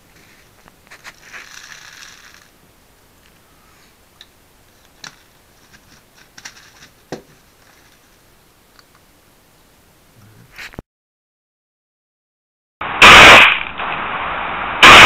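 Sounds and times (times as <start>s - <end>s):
plastic bottle crinkling: 0.1s - 2.6s, 4.7s - 8.2s.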